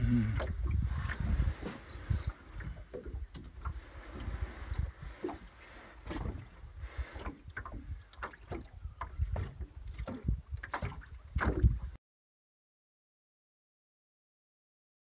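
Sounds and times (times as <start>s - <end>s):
water splashing and knocking: 0.0s - 12.0s
wind rumble on microphone: 0.0s - 12.0s.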